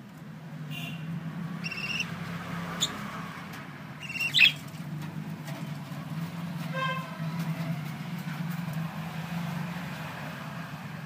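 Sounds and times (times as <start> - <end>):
budgerigars chirping: 1.6 - 2.1, 2.8 - 3.0, 4.0 - 4.6.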